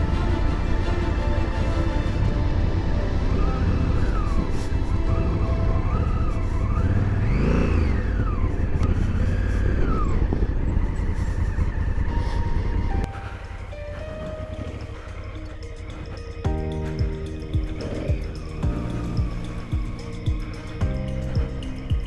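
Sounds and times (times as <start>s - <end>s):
wind and tyre rumble: 0.0s - 22.0s
motorcycle engine revving: 5.0s - 12.1s.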